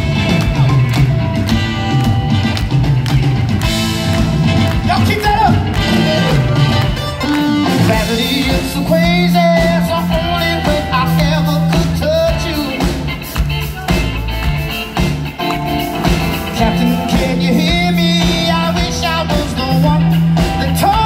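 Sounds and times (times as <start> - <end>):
soul band playing live: 0.0 - 21.0
man singing: 4.8 - 6.7, 7.5 - 14.2, 16.4 - 21.0.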